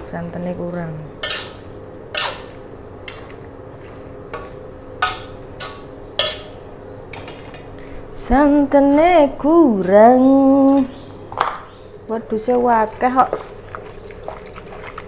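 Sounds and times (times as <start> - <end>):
steady low hum: 0.0 - 15.0
person speaking: 12.1 - 13.5.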